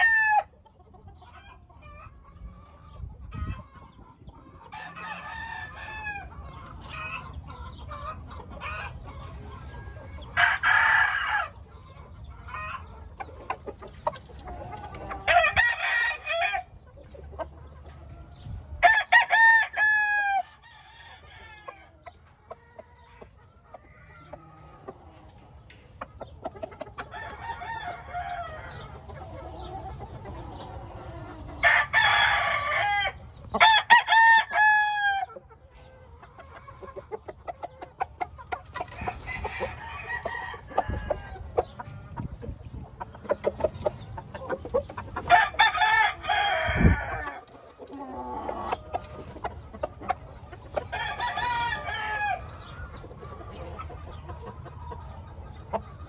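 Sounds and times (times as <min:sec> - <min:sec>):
roosters crowing: 0:00.0 - 0:00.6, 0:04.6 - 0:11.6, 0:14.4 - 0:16.9, 0:18.0 - 0:25.8, 0:26.7 - 0:37.0, 0:38.4 - 0:42.1, 0:43.5 - 0:53.8
soft chicken calls: 0:00.0 - 0:56.0.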